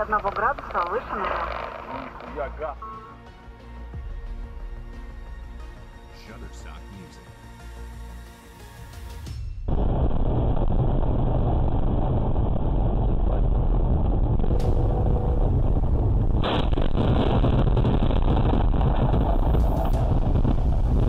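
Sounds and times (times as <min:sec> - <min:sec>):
car engine and road noise: 0:12.3 - 0:21.0.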